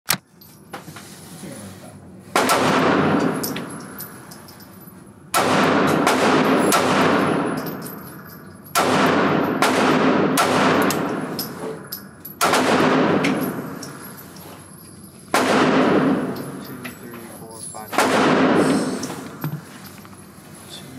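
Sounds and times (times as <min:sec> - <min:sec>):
pistol shots indoors: 0:02.3 - 0:04.2, 0:05.3 - 0:14.2, 0:15.2 - 0:16.7, 0:17.9 - 0:19.4.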